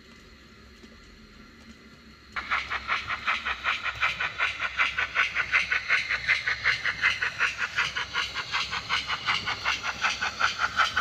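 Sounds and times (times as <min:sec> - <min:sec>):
locomotive motor hum: 0:00.2 - 0:11.0
model train wheels rolling: 0:02.4 - 0:11.0.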